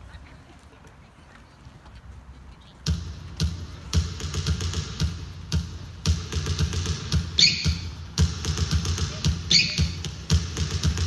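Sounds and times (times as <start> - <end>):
heavy kick drum beat: 2.9 - 11.0
hip hop dance track over loudspeakers: 2.9 - 11.0.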